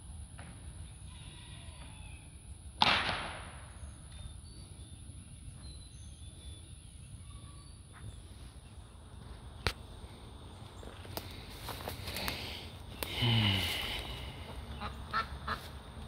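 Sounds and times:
sharp crack: 2.8 - 3.7
faint high chirps: 3.8 - 8.9.

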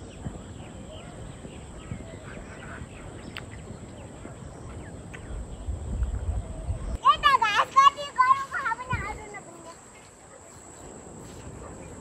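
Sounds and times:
faint bird chirps: 0.0 - 7.0
steady background hiss: 0.0 - 12.0.

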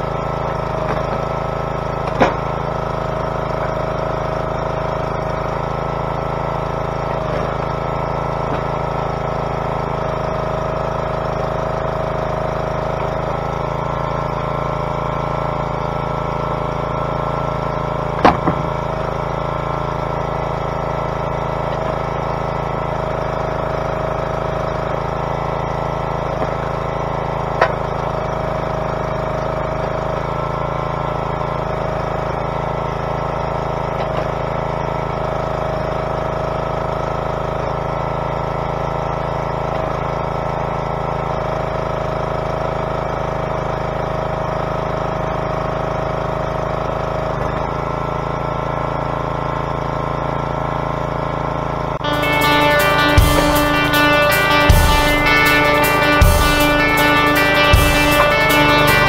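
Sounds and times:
log splitter engine running: 0.0 - 59.0.

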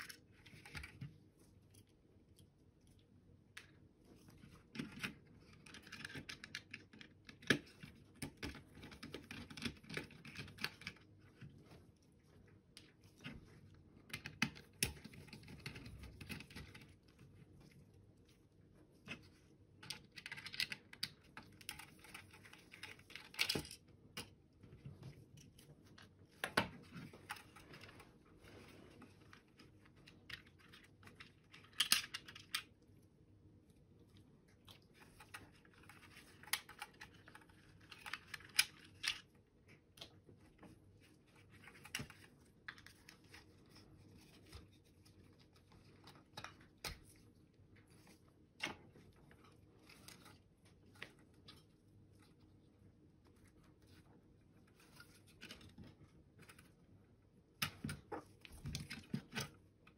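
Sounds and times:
plastic parts clicking and rustling: 4.4 - 11.5, 19.0 - 24.4, 25.0 - 32.8, 35.0 - 39.4.

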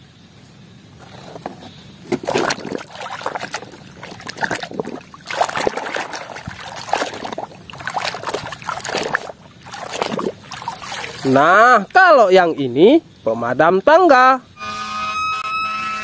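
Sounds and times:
water sloshing in plastic basin: 1.0 - 12.7.

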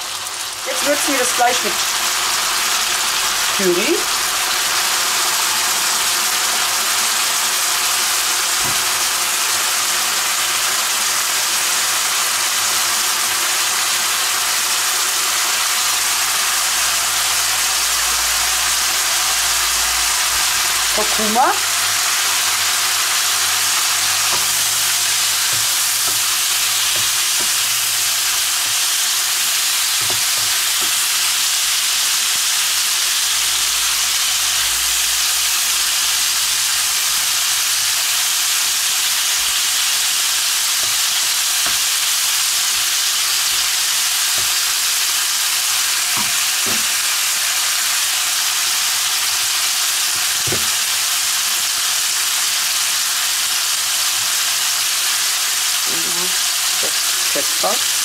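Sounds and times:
chicken sizzling in hot oil: 0.0 - 58.0
wooden spatula knocking: 25.4 - 27.7, 30.0 - 31.0, 46.2 - 47.0.

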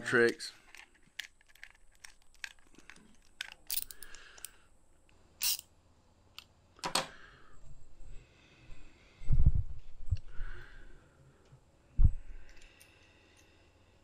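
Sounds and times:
socket ratchet clicking: 5.4 - 5.6.

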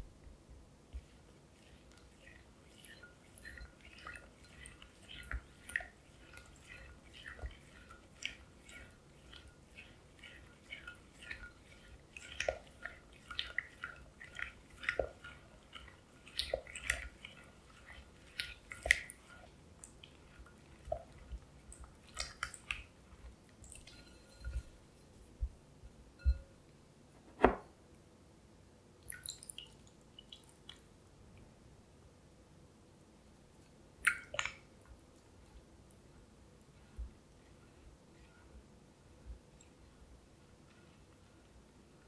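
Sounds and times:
spatula stirring sticky chocolate: 0.8 - 24.9.

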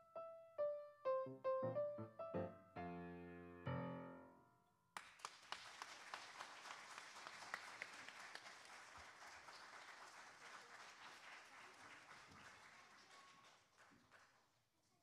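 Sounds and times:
audience applause: 5.0 - 14.5.

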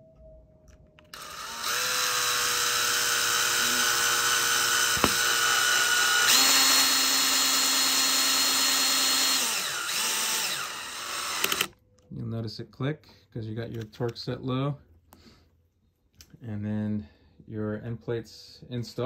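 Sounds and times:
cordless drill whining: 1.1 - 11.7.

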